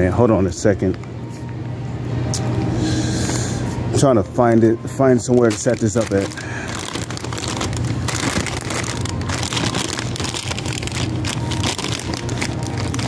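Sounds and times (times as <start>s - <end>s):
constant low hum: 0.0s - 13.0s.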